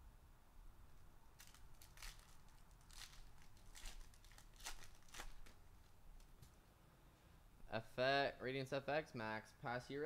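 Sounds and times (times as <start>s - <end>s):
foil wrapper crinkling and tearing: 1.4s - 5.9s.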